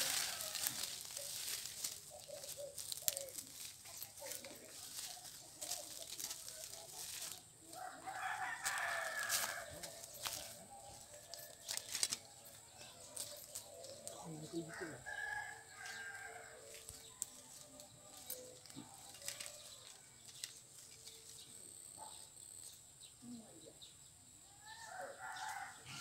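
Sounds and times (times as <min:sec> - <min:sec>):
rooster crowing: 0:00.0 - 0:01.3, 0:07.7 - 0:11.8, 0:14.6 - 0:16.8, 0:24.6 - 0:26.0
footsteps on dry leaves: 0:00.0 - 0:21.5.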